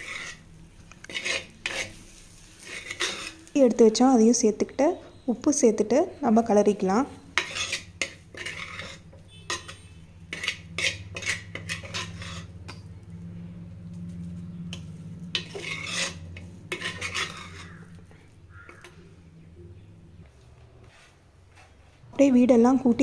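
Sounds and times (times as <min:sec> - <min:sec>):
metal spoon scraping rice in pan: 0:00.0 - 0:03.5, 0:07.3 - 0:12.8, 0:14.7 - 0:19.0
low steady hum: 0:00.0 - 0:23.0.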